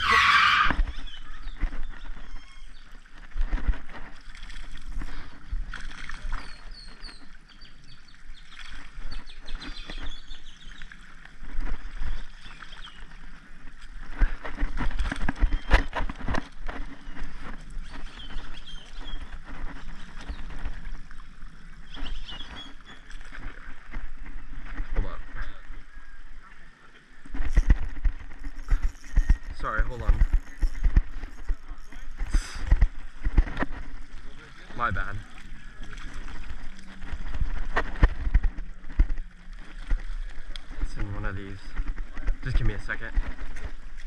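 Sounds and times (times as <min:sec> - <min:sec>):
faint birds chirping: 0:00.0 - 0:03.2, 0:06.1 - 0:14.6, 0:15.3 - 0:27.6
wind rumbling on microphone: 0:00.0 - 0:44.0.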